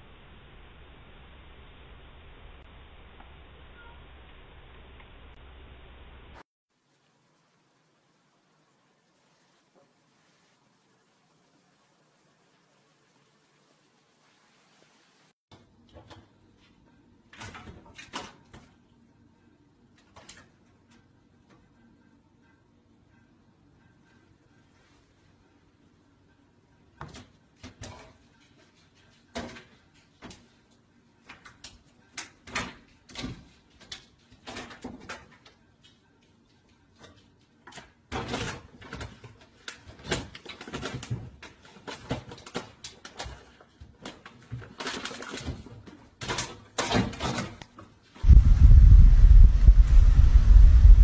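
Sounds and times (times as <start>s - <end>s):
loud low rushing noise: 48.2s - 51.0s.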